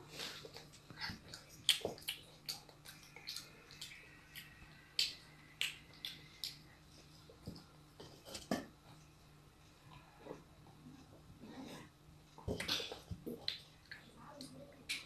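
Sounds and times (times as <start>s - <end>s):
child chewing with wet mouth smacks: 0.0s - 8.7s, 11.8s - 15.0s.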